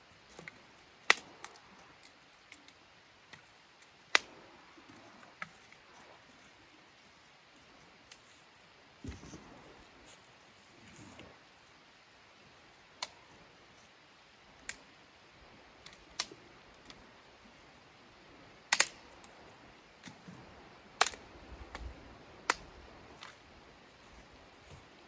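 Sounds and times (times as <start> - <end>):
low steady background noise: 0.0 - 25.0
sharp clicks and cracks: 0.2 - 6.2, 14.6 - 14.9, 15.8 - 17.0, 18.6 - 19.4, 20.9 - 23.4.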